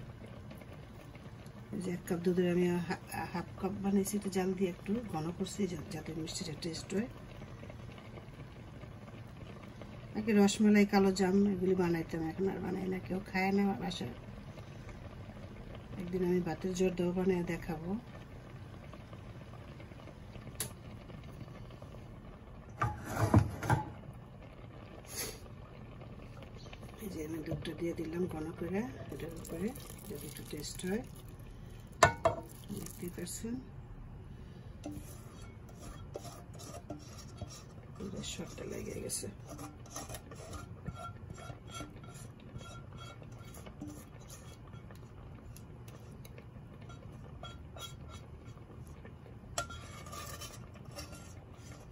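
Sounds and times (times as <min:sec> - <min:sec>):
milk boiling in a pot: 0:00.0 - 0:51.9
metal pot clattering and scraping: 0:22.7 - 0:24.0, 0:31.9 - 0:33.1, 0:34.8 - 0:51.9
low steady rumble: 0:23.8 - 0:51.9.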